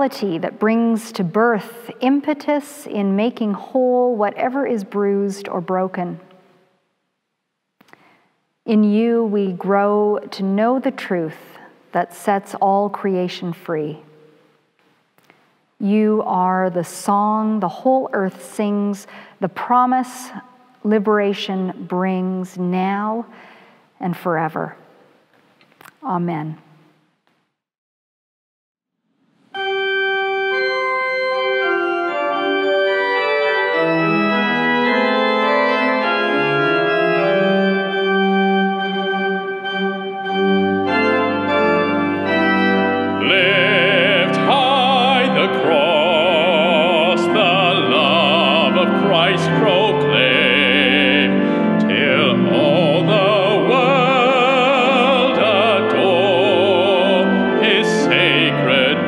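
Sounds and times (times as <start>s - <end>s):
pipe organ chords: 29.5s - 59.0s
low organ pedal bass: 29.6s - 59.0s
man singing with vibrato: 43.2s - 59.0s.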